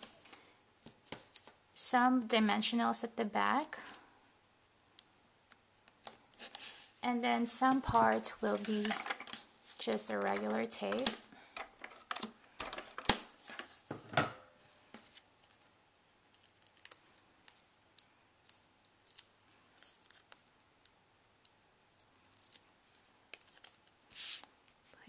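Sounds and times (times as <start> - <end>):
cardstock rustling and ticking: 7.8 - 13.7.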